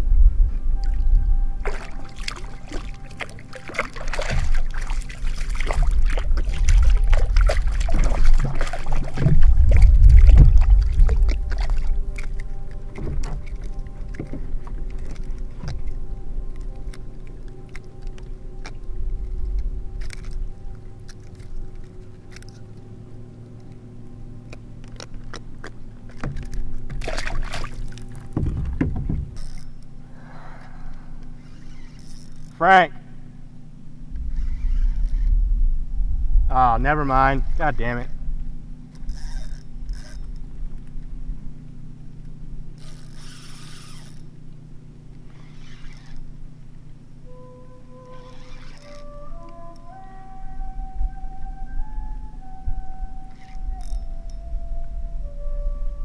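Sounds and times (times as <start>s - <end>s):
heavy low thumps: 0.0s - 17.4s, 25.9s - 29.7s, 34.0s - 38.7s
heavy low rumble: 0.0s - 31.5s, 32.3s - 42.8s, 46.2s - 56.0s
water splashing: 0.8s - 23.6s, 24.4s - 29.8s
knocks and clicks on plastic kayak: 24.5s - 29.4s.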